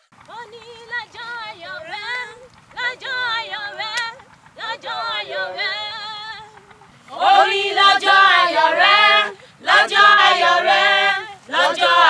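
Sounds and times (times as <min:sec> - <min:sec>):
woman singing into a microphone: 0:00.3 - 0:06.6
other singers joining: 0:00.3 - 0:12.0.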